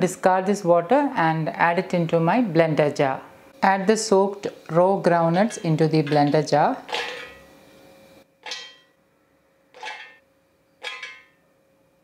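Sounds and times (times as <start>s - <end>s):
metal jar ringing: 6.9s - 7.5s, 8.4s - 9.0s, 9.8s - 10.2s, 10.8s - 11.4s.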